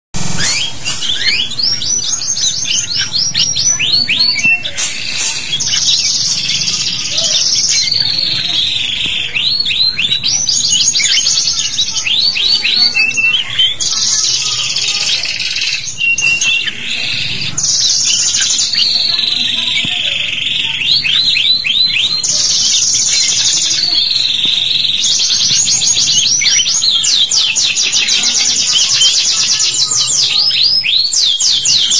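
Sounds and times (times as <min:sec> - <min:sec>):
canary singing: 0:00.2 - 0:31.9.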